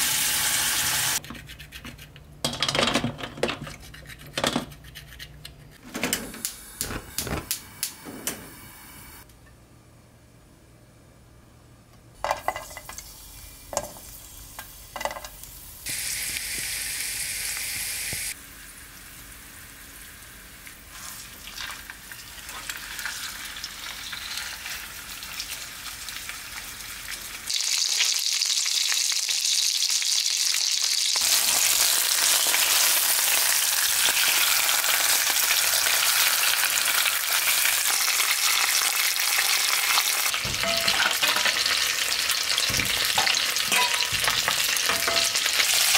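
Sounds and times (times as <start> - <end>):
food sizzling in oil: 0.0 - 1.2, 12.6 - 45.9.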